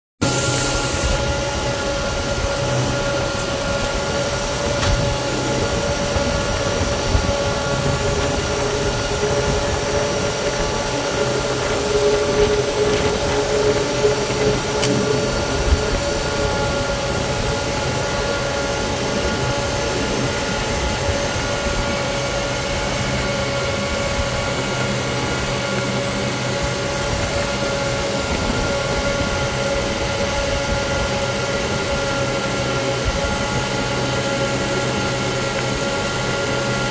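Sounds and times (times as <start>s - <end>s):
extra whine: 0.2s - 36.9s
jet engines whining on ground: 0.2s - 36.9s
constant tones: 0.7s - 36.9s.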